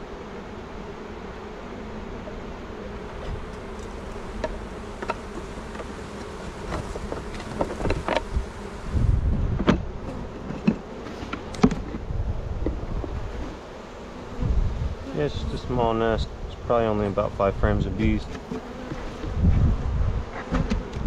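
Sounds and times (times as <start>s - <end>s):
honey bees buzzing: 0.0s - 21.0s
hive equipment knocks and clicks: 3.2s - 8.3s, 9.5s - 12.0s.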